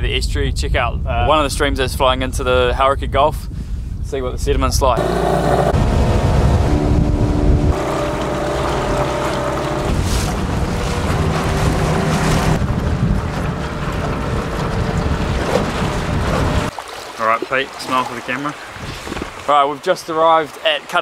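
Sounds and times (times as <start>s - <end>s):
wind buffeting microphone: 0.0s - 16.7s, 18.6s - 19.5s
outboard motor running: 5.0s - 16.7s
water rushing past hull: 5.0s - 21.0s.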